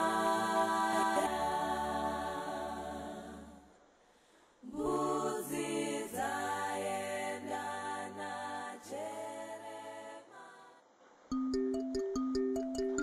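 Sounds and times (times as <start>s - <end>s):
choir-like singing: 0.0s - 3.8s, 4.6s - 10.8s.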